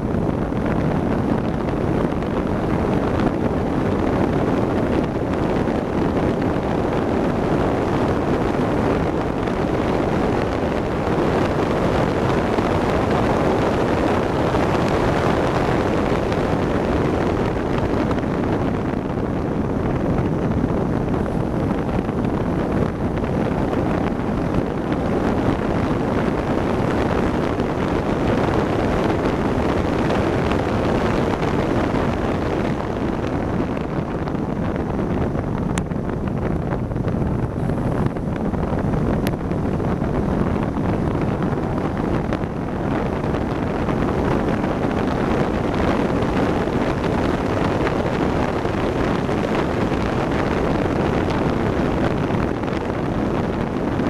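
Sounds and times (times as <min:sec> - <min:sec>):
road noise: 0:00.0 - 0:54.0
wind rushing over microphone: 0:00.0 - 0:54.0.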